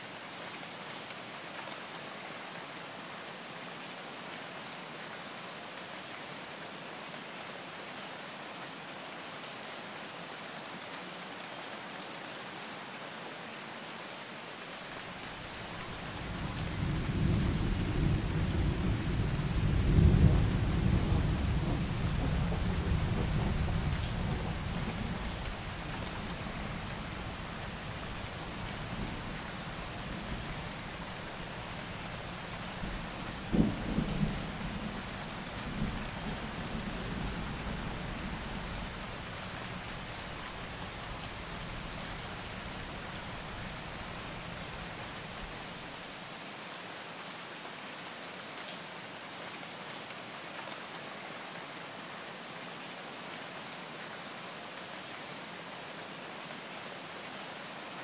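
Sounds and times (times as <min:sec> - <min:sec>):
steady rain: 0:00.0 - 0:58.0
rolling thunder: 0:16.0 - 0:25.6, 0:32.8 - 0:39.1.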